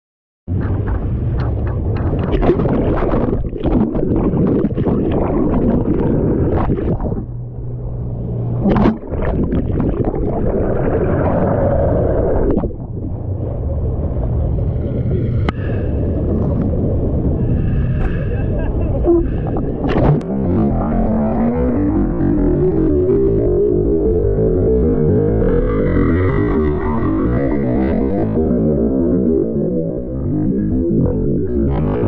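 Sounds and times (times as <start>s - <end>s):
wind buffeting microphone: 0.5s - 22.5s
boat engine rumbling: 0.5s - 32.0s
water rushing and splashing: 2.0s - 20.6s.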